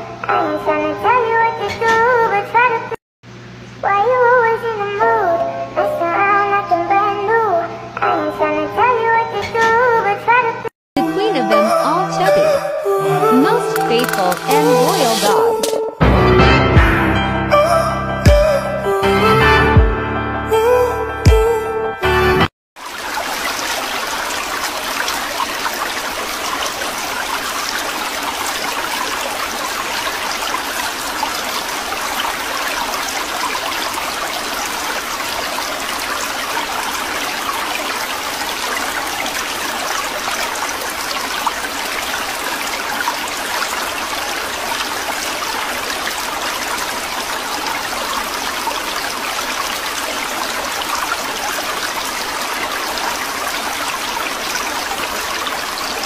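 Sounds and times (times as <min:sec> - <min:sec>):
watery trickle: 0:22.8 - 0:56.0.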